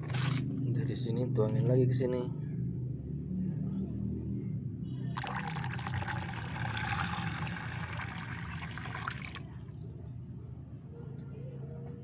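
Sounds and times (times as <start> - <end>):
water pouring and splashing: 5.2 - 9.5.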